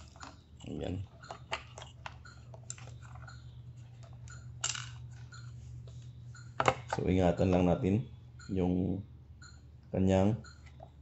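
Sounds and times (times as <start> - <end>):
plastic clicks and rattles: 0.0 - 3.4
steady low hum: 0.0 - 11.0.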